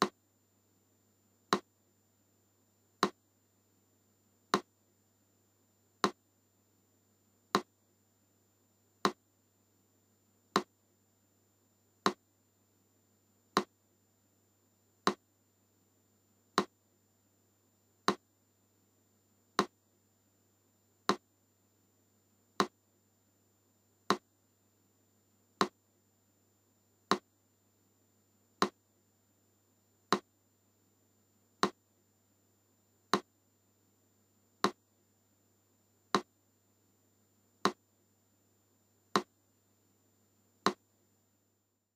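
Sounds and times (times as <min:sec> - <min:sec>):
faint low hum: 0:00.0 - 0:41.9.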